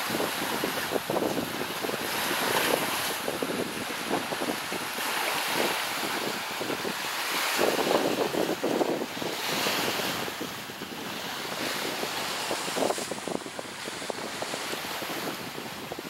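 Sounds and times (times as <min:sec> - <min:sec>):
surf washing against rocks: 0:00.0 - 0:16.0
wind gusting on microphone: 0:00.0 - 0:16.0.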